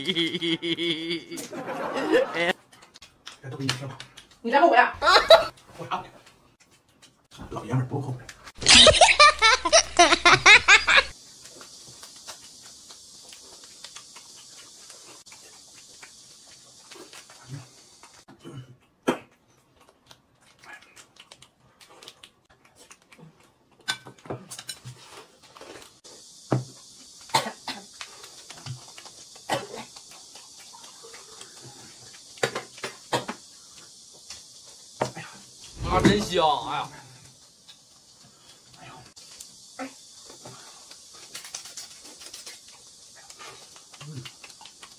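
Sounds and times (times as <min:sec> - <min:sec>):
people laughing: 0:00.0 - 0:02.5, 0:05.0 - 0:05.5, 0:08.6 - 0:11.1
eating noises: 0:00.0 - 0:04.4, 0:11.1 - 0:36.3, 0:37.2 - 0:44.9
sharp clicks and smacks: 0:02.7 - 0:04.5, 0:11.4 - 0:17.4, 0:19.8 - 0:23.2, 0:40.8 - 0:44.9
steady hiss: 0:08.0 - 0:18.3, 0:24.6 - 0:44.9.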